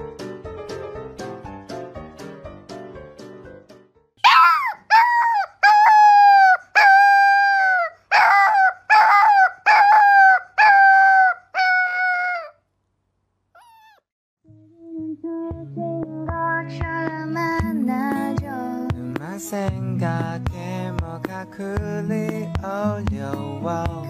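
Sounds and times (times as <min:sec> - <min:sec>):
puppy howling: 0:04.2 - 0:12.5, 0:13.6 - 0:14.0.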